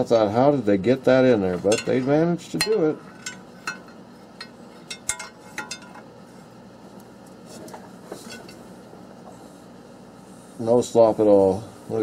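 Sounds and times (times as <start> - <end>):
steel bar clinking on bolts: 2.6 - 6.0.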